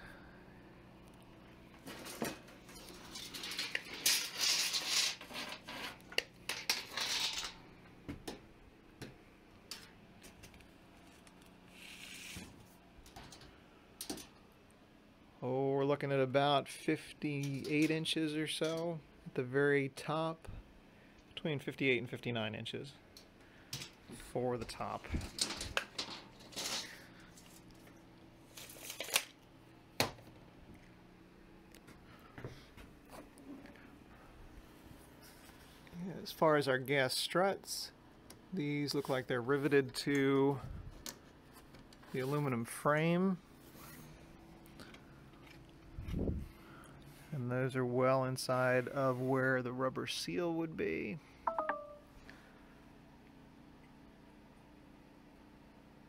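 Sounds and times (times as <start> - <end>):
scraping and rustling: 1.8 - 7.6.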